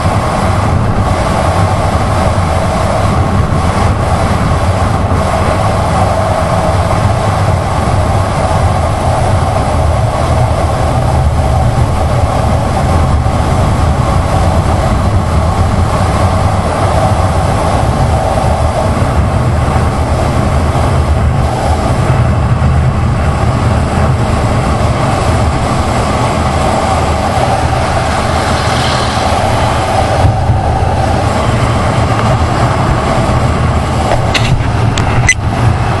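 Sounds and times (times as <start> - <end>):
wind rushing over microphone: 0.0 - 36.0.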